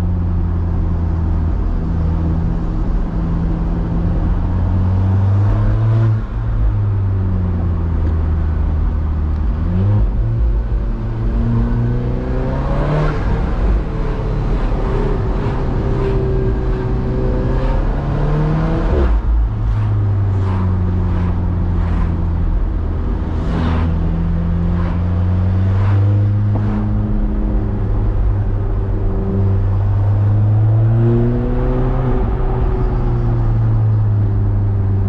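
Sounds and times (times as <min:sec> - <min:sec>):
car engine from inside cabin: 0:00.0 - 0:35.0.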